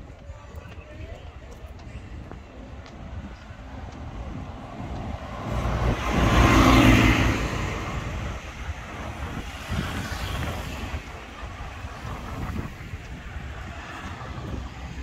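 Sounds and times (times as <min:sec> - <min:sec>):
vehicle passing by: 0:04.3 - 0:15.0.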